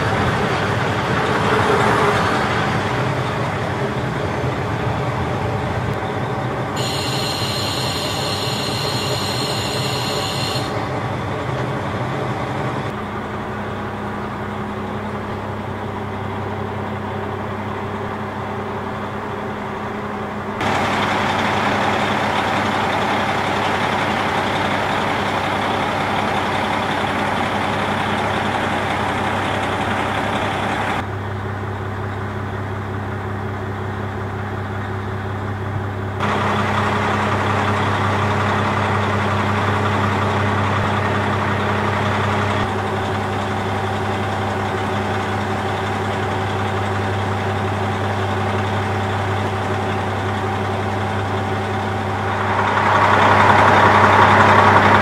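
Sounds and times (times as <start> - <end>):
diesel railcar engine idling: 0.0 - 55.0
high-pitched ringing: 6.8 - 10.8.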